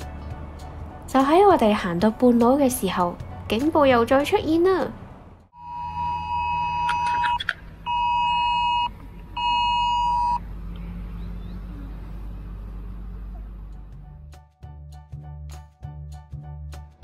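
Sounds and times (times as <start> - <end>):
two-tone alert beep: 5.6 - 10.4.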